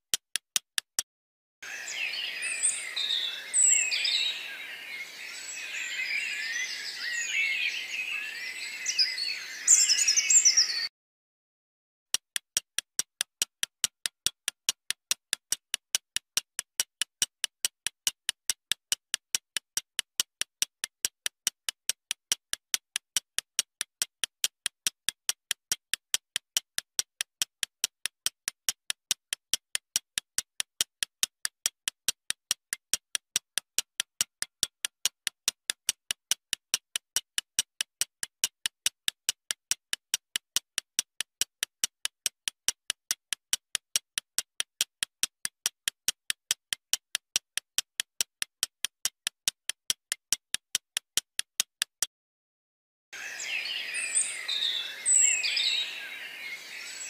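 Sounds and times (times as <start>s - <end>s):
timer ticking: 12.2s - 52.1s.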